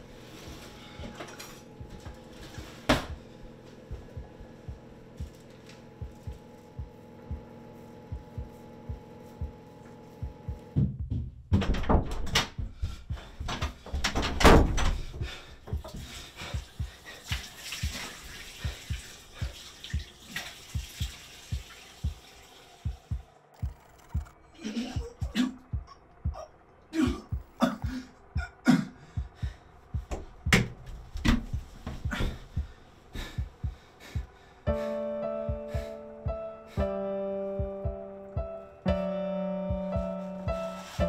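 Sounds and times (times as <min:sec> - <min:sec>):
steady low hum: 0:00.0 - 0:20.1, 0:22.8 - 0:41.0
water running into sink: 0:17.1 - 0:23.1.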